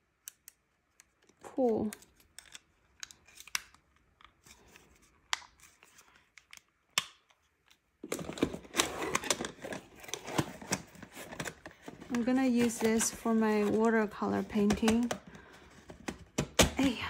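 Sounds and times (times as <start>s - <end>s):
cardboard and paper rustling: 8.0s - 17.0s.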